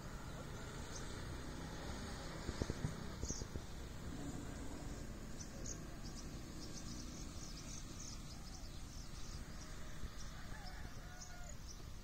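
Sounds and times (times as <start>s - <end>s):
small birds chirping: 0.0s - 12.0s
steady low rumble: 0.0s - 12.0s.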